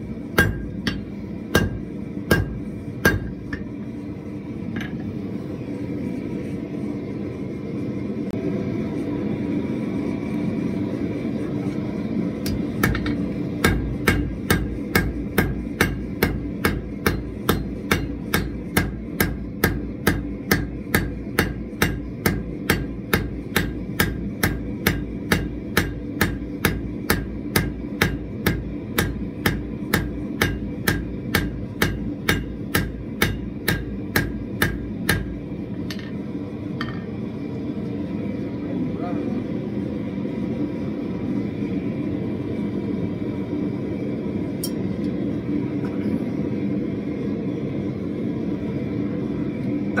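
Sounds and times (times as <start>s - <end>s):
gas forge burner rushing: 0.0s - 50.0s
hammer striking steel on anvil: 0.3s - 3.8s, 12.4s - 37.2s, 44.6s - 44.9s.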